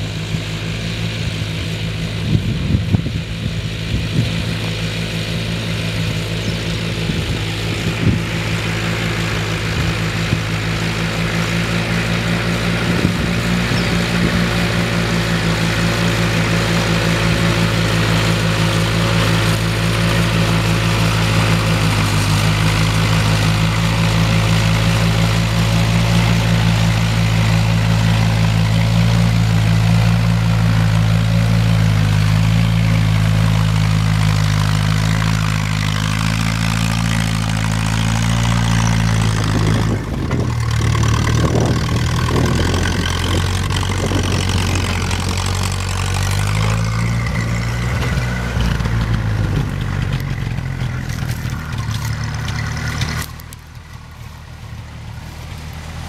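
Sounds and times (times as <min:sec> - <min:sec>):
tractor engine running under load: 0:00.0 - 0:56.0.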